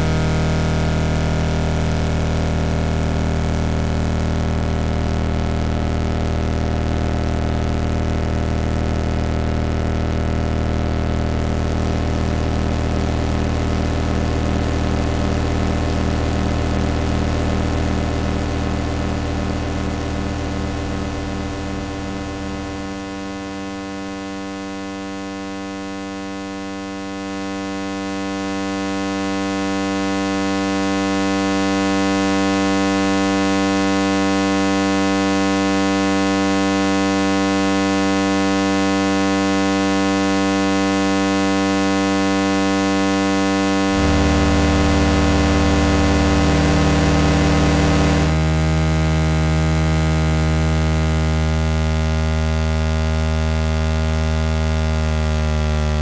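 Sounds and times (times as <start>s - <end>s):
synthetic electronic buzzing drone: 15.2s - 24.2s, 43.7s - 50.7s.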